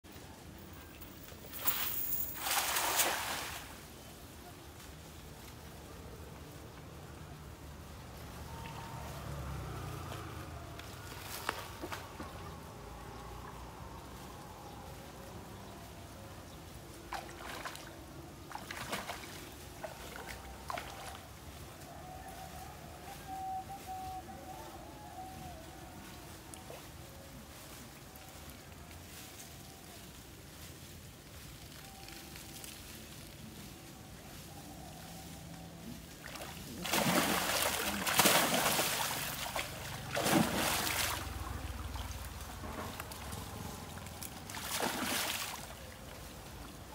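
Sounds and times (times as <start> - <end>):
water splashing and dripping: 0.9 - 3.9, 16.9 - 21.5, 36.1 - 46.9.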